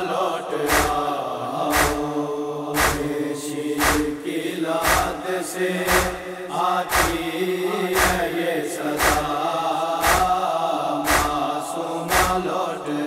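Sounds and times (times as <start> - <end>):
chorus sustained wordless chant: 0.0 - 13.0
chest-beating slaps: 0.7 - 1.1, 1.7 - 2.1, 2.8 - 3.2, 3.8 - 5.2, 5.9 - 6.2, 6.9 - 7.3, 8.0 - 8.3, 9.0 - 9.3, 10.0 - 10.4, 11.1 - 11.4, 12.1 - 12.5.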